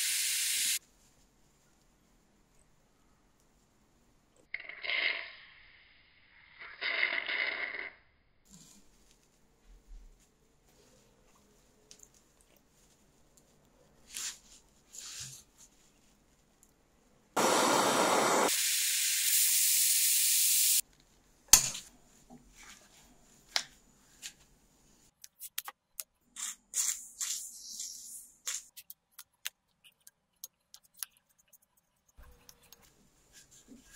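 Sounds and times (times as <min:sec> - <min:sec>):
aerosol spray can hissing: 0:00.0 - 0:00.8, 0:17.4 - 0:20.8.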